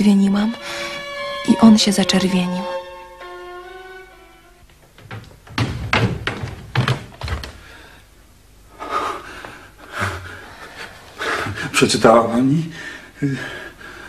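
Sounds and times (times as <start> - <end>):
dull thuds and knocks: 4.8 - 7.7.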